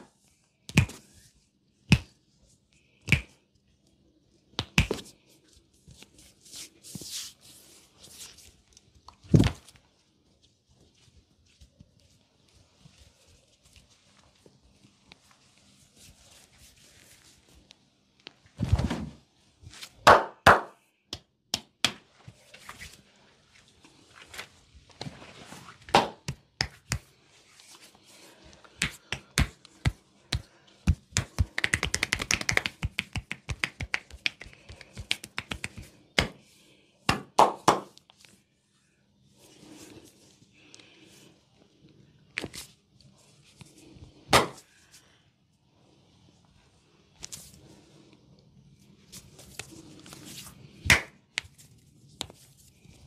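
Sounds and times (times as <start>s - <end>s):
hands slapping skin: 0.7s - 1.0s, 1.9s - 2.2s, 3.0s - 3.4s, 4.6s - 5.1s, 25.9s - 27.1s, 28.7s - 36.4s, 37.1s - 38.0s, 50.8s - 51.6s.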